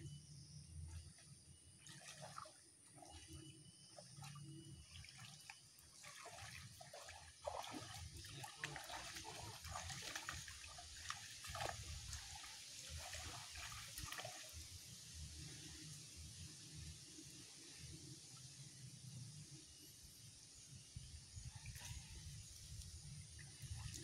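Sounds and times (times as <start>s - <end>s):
muddy water splashing: 0.8s - 15.9s, 21.4s - 24.0s
water dripping: 4.0s - 14.5s.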